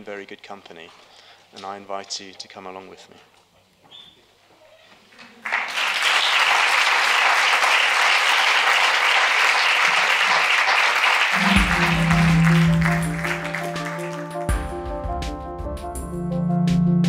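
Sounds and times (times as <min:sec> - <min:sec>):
audience applauding: 0:05.2 - 0:14.6
music with sustained notes: 0:11.4 - 0:17.0.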